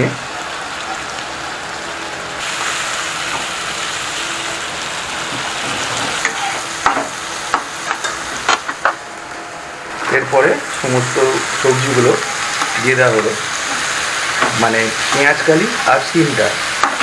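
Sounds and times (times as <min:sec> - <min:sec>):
vegetables sizzling in oil: 0:00.0 - 0:17.0
spatula scraping a pan: 0:05.6 - 0:06.7.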